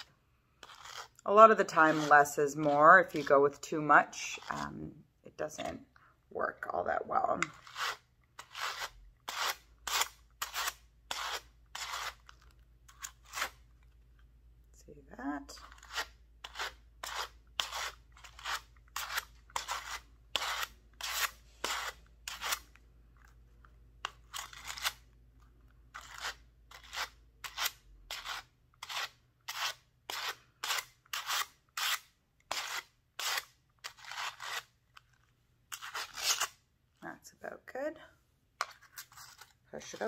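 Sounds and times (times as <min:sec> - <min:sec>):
wire brushes raking fur: 0:00.0 - 0:04.7.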